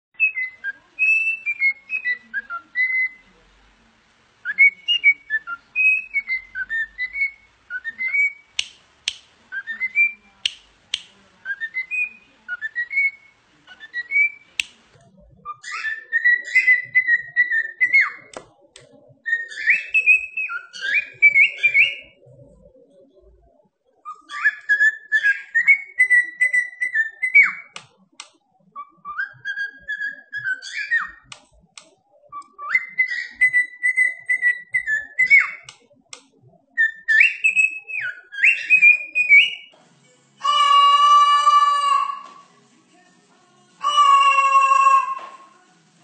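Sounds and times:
cockatiel whistling a tune: 0.2 - 3.3, 4.4 - 8.7, 9.5 - 10.6, 11.4 - 14.7, 15.5 - 18.3, 19.3 - 22.2, 24.0 - 27.8, 28.8 - 31.3, 32.2 - 35.8, 36.7 - 39.7
sharp clicks: 8.6 - 9.3, 10.4 - 11.2.

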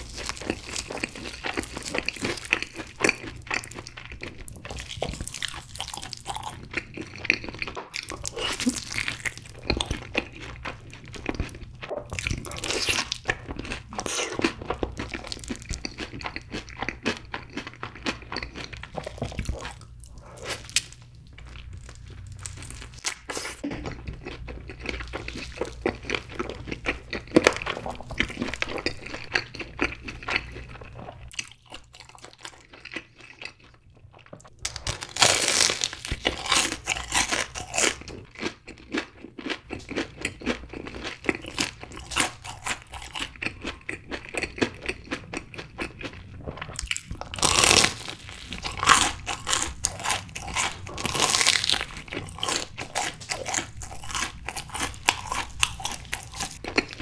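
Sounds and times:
close chewing: 0.0 - 57.0
crunchy bites: 34.6 - 46.0, 46.8 - 57.0.

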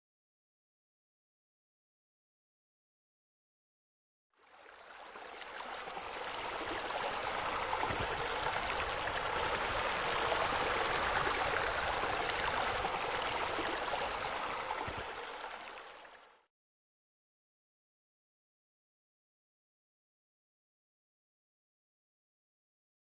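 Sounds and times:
water cascading into pool: 5.0 - 16.1.

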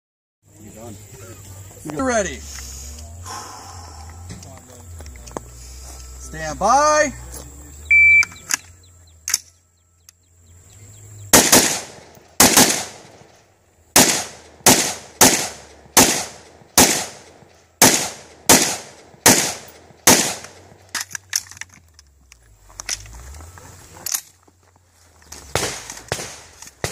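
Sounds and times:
rifle shots: 11.3 - 21.4, 25.5 - 26.9.

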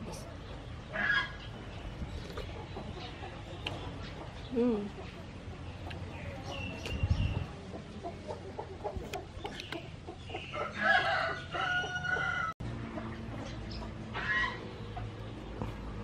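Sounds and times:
rooster crowing: 10.6 - 12.6.

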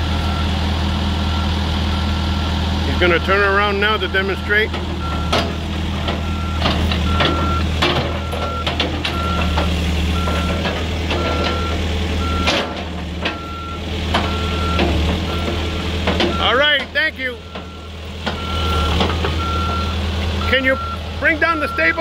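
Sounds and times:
diesel engine rumbling: 0.0 - 22.0
backup alarm beeping: 4.4 - 5.5, 6.2 - 9.6, 10.2 - 10.6, 11.2 - 12.6, 13.3 - 15.6, 16.3 - 16.7, 17.4 - 22.0.

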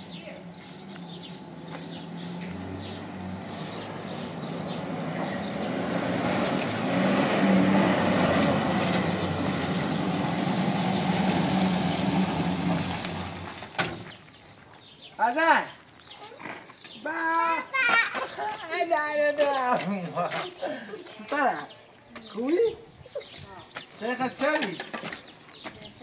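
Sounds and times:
broom sweeping concrete: 0.0 - 9.6
pickup truck engine approaching: 0.0 - 14.2.

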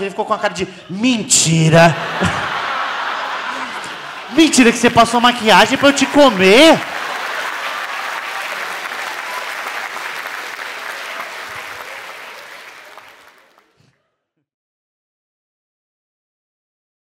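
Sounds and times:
audience applauding: 2.1 - 13.9.

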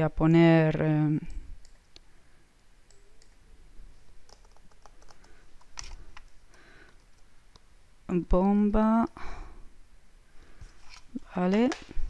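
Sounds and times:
computer keyboard typing clicks: 4.3 - 7.3.

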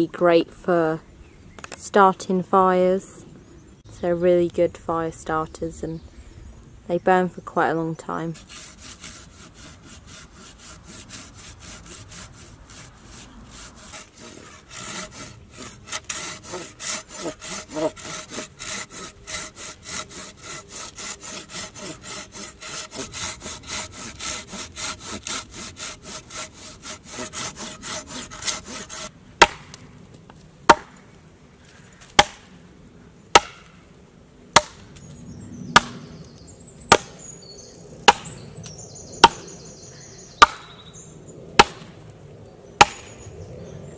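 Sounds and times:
hand saw cutting log: 8.4 - 29.8, 33.3 - 33.6, 36.9 - 37.2, 38.1 - 38.3, 40.4 - 40.7, 41.6 - 41.9, 42.8 - 43.1
axe chopping wood: 29.4 - 29.8, 30.7 - 31.0, 32.2 - 32.5, 33.3 - 33.8, 34.6 - 34.8, 35.8 - 36.0, 36.9 - 37.2, 38.0 - 38.3, 39.2 - 39.4, 40.4 - 40.7, 41.6 - 42.0, 42.8 - 43.2.

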